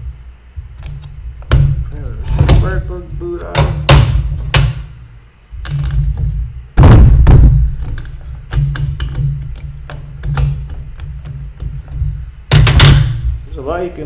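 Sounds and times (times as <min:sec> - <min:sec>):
heavy thump: 0:05.7 - 0:09.4.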